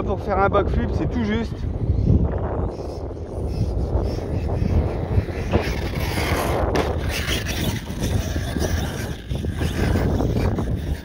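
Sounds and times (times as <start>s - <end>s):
wind buffeting microphone: 0.0s - 11.0s
electric motor of toy truck: 3.1s - 11.0s.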